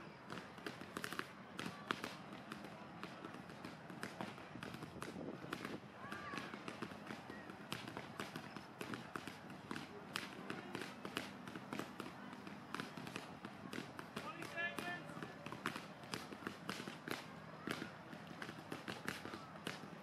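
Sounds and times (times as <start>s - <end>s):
people chattering: 0.0s - 20.0s.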